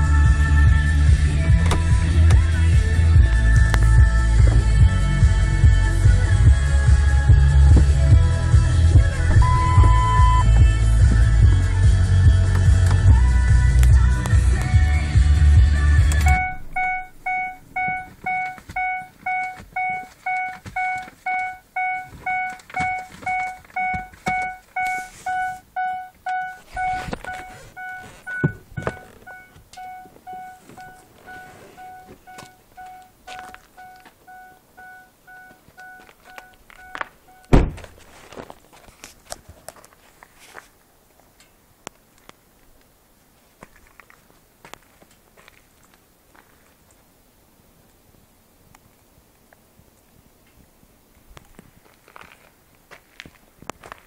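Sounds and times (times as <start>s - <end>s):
car stereo music: 0.0s - 37.8s
car engine rumble: 0.0s - 43.3s
car door slamming: 1.5s - 2.4s, 9.2s - 10.4s, 16.1s - 21.1s, 26.4s - 32.5s, 37.5s - 38.0s
dashboard warning chime: 9.3s - 10.6s, 16.2s - 37.6s.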